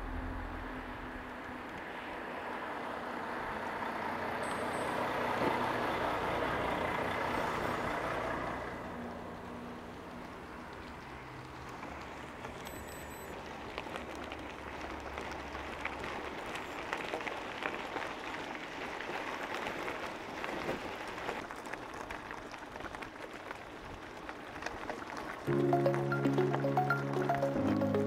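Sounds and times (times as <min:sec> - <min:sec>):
low hum: 0:00.0 - 0:01.8
tyres rolling on road: 0:00.1 - 0:28.0.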